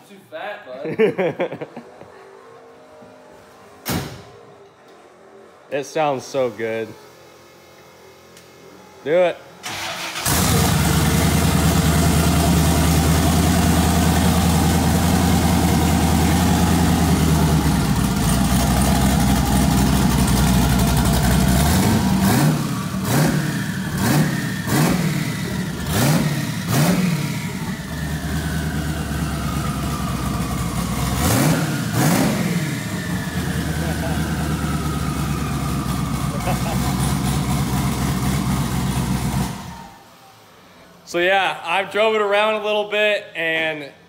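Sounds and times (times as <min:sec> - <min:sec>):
car engine idling and revving: 0:09.7 - 0:40.2.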